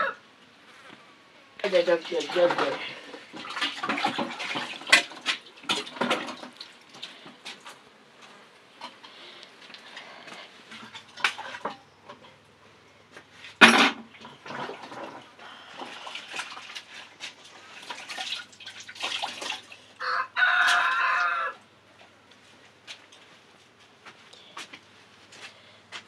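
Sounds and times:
rooster crowing: 0.0 - 0.2, 20.0 - 21.7.

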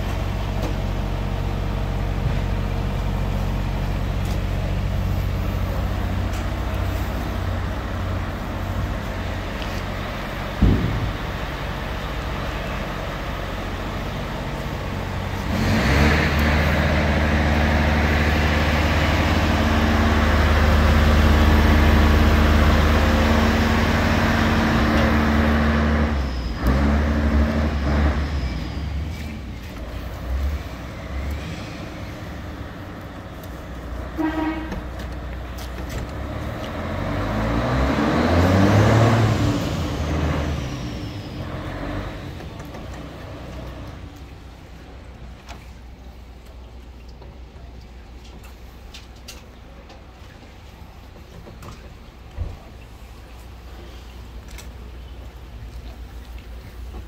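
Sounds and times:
excavator diesel engine running: 0.0 - 57.0.

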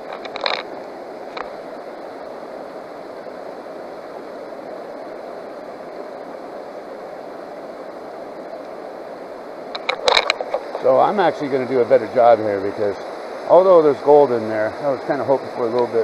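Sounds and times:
river water rushing: 0.0 - 16.0
water swirled in plastic pan: 9.9 - 11.0.

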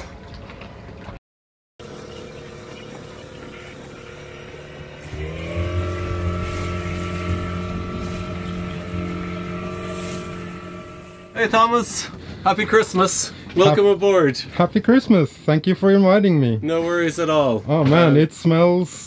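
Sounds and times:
outboard motor running: 1.8 - 13.7.

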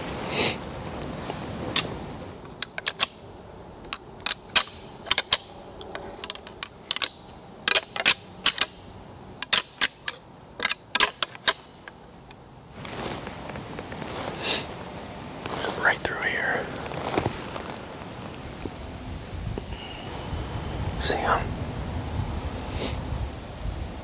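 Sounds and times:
footsteps crackling dry leaves: 0.0 - 2.4, 11.6 - 21.2.

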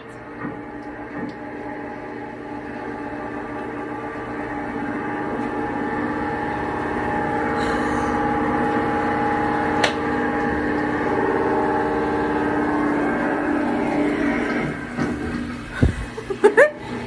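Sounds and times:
droning held tones: 2.6 - 15.0.

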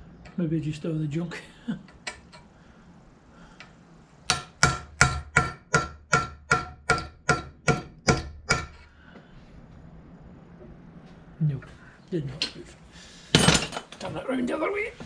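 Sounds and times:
hammer striking steel punch: 4.3 - 8.8.

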